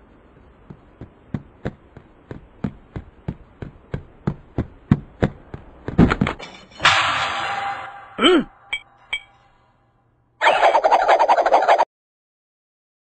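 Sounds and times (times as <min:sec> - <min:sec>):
sharp cartoon knocks: 0:00.6 - 0:09.3.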